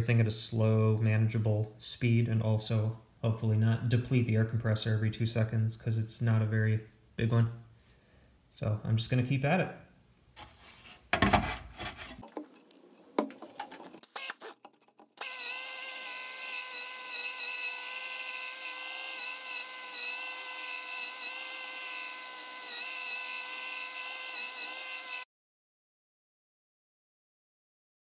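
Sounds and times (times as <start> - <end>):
handling knocks and clicks: 11.2 - 14.0, 14.6 - 15.2
air polisher whining: 15.2 - 25.2.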